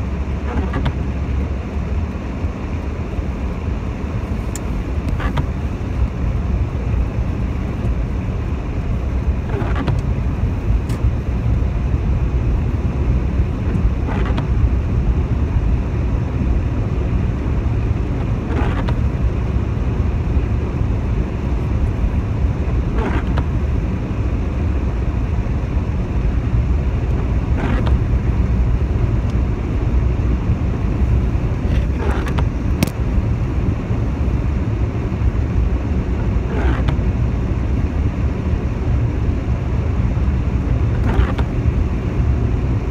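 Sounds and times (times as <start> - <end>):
car engine and tyres rumbling: 0.0 - 42.9.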